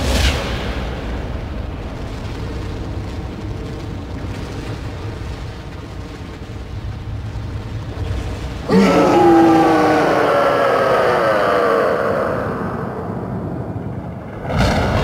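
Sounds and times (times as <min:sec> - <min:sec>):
deep rumbling sound effect: 0:00.0 - 0:15.0.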